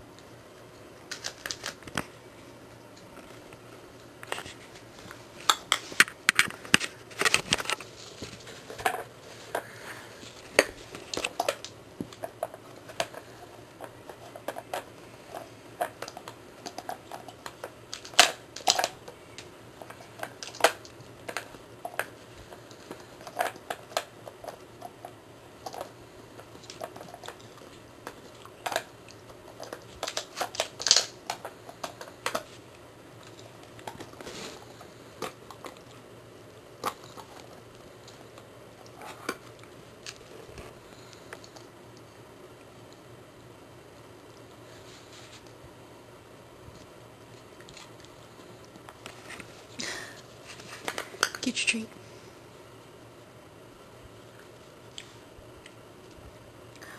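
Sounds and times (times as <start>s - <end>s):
plastic toy clattering and clicking: 1.1s - 2.1s, 13.8s - 32.6s.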